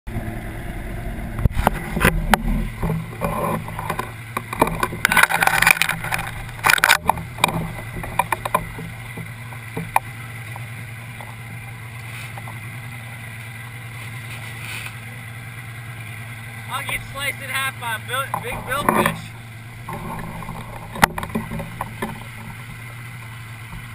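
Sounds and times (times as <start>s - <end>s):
boat engine idling: 0.1s - 23.9s
handling knocks and rustling: 1.5s - 11.4s, 12.0s - 12.7s, 18.3s - 23.9s.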